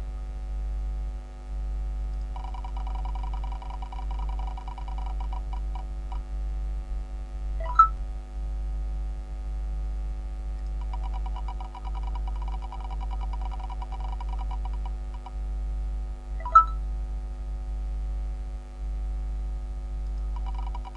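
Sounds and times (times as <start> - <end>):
low electronic hum: 0.0 - 20.9
prize wheel ticking: 10.9 - 14.8, 20.4 - 20.9.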